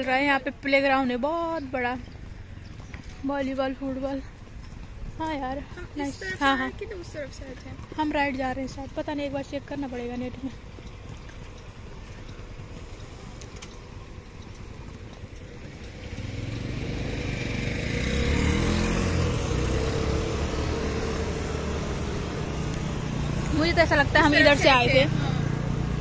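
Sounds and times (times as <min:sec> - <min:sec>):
motor scooters and cars passing: 0:00.0 - 0:26.0
vehicle engine passing close: 0:13.0 - 0:26.0.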